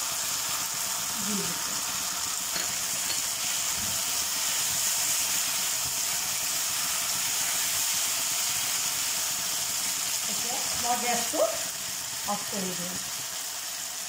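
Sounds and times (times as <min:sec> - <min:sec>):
food sizzling in a wok: 0:00.0 - 0:14.0.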